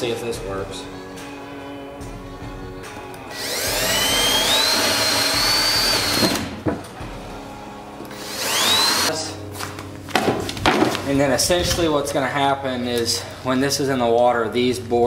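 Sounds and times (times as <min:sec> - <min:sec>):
cordless drill boring wood: 0:03.3 - 0:06.5, 0:08.2 - 0:09.2.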